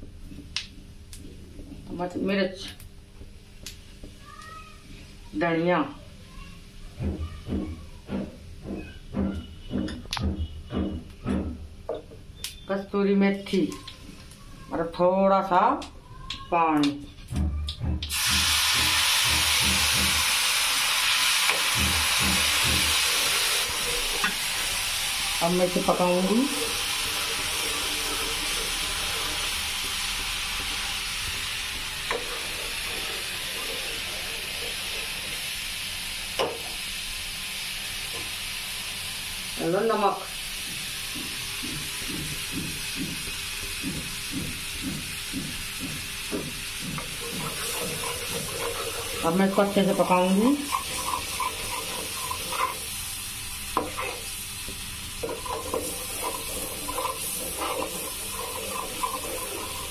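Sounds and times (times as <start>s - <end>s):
water sizzling in hot oil: 18.1s - 59.9s.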